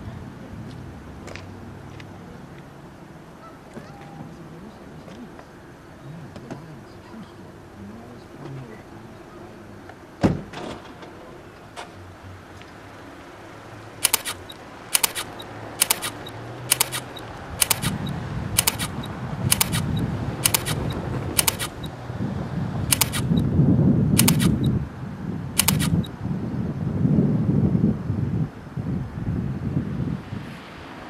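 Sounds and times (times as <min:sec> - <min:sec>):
camera shutter clicks: 0:14.0 - 0:21.9, 0:22.9 - 0:23.4, 0:24.2 - 0:24.7, 0:25.6 - 0:26.1.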